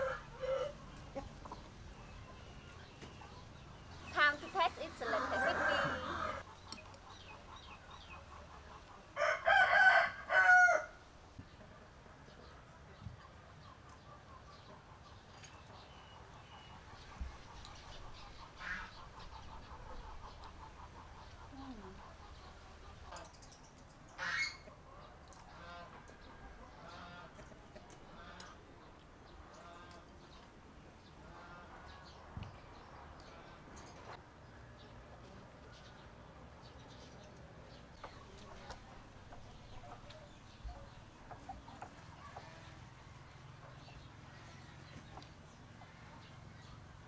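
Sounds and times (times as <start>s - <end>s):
rooster crowing: 5.0s - 6.4s, 9.2s - 11.0s
fowl calling: 24.2s - 24.7s.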